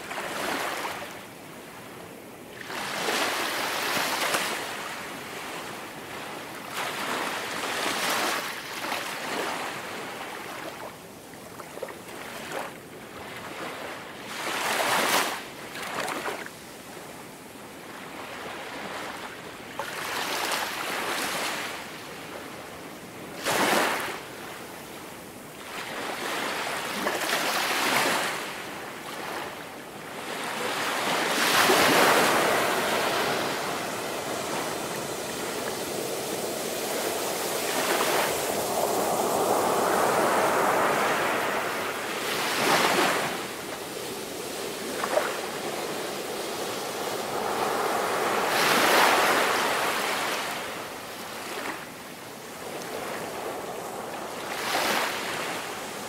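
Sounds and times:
ocean waves breaking: 0:25.6 - 0:56.0.

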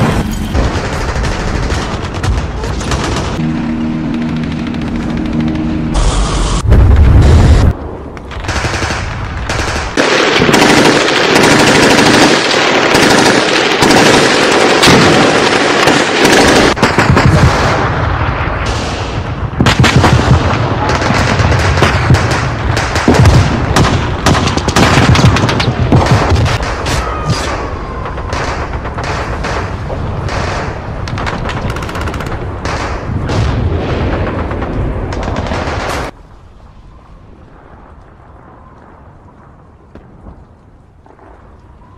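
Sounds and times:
machine-gun and rifle fire: 0:00.0 - 0:03.5, 0:08.4 - 0:18.0, 0:19.6 - 0:26.9, 0:28.0 - 0:36.1
heavy booms: 0:05.9 - 0:08.4.

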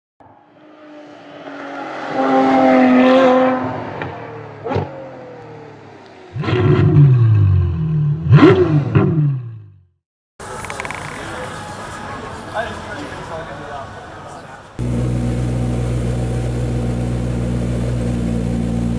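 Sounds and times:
car engine revving hard: 0:00.8 - 0:05.4, 0:08.2 - 0:09.3.

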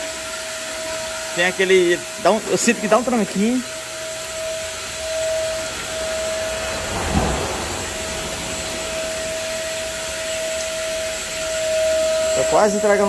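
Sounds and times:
vacuum cleaner running: 0:00.0 - 0:13.0
low bump: 0:05.3 - 0:10.5.

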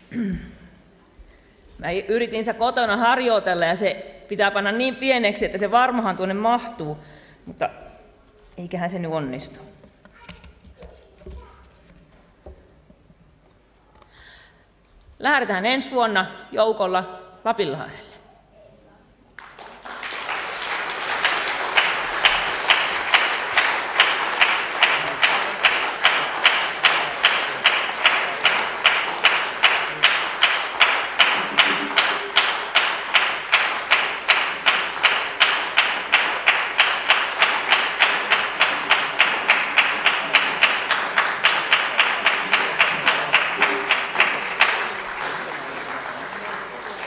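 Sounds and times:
audience clapping in unison: 0:19.3 - 0:47.0.

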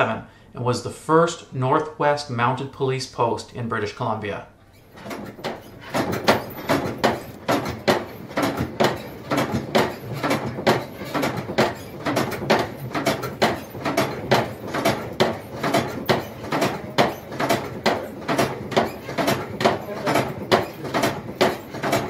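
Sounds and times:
bellows creaking and wheezing: 0:04.6 - 0:22.0.

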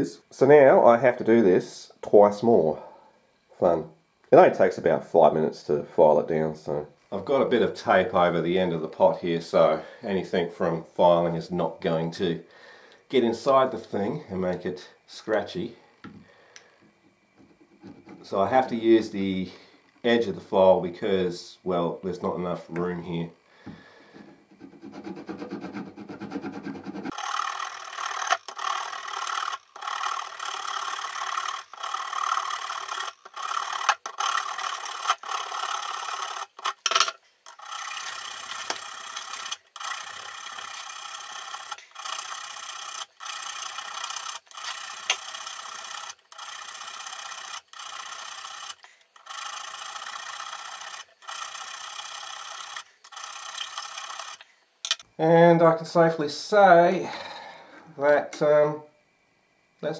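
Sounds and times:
file rasping on steel: 0:17.4 - 0:18.2, 0:24.1 - 0:36.6.

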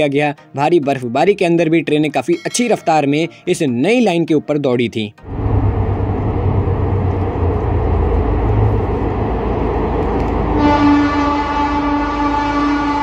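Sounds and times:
train rumbling on track: 0:05.2 - 0:13.0.

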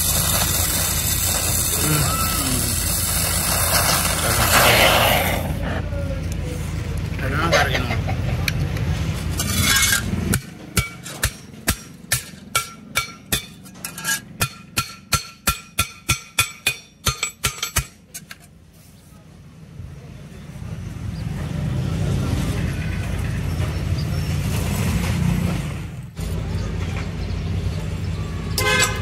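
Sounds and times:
welding torch flame rushing: 0:00.0 - 0:05.7
mallet beating steel sheet: 0:10.3 - 0:18.0.

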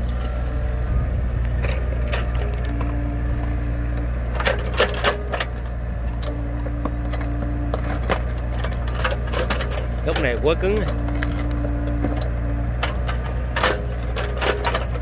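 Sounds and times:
excavator engine running: 0:00.0 - 0:15.0.

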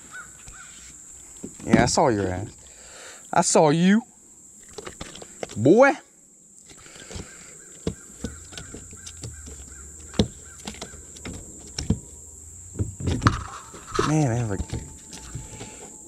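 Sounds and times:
low steady rumble: 0:08.1 - 0:16.0.

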